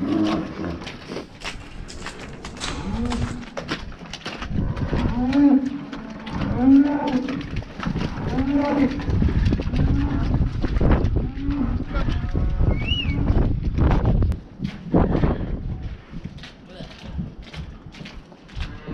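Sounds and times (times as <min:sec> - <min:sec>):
cattle mooing: 0:00.0 - 0:00.9, 0:02.0 - 0:03.8, 0:04.5 - 0:10.4, 0:11.2 - 0:13.2.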